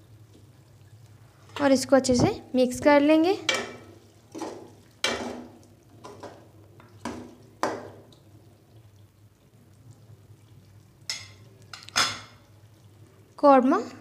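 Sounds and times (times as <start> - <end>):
spoon knocking against metal pot: 3.5 - 3.9.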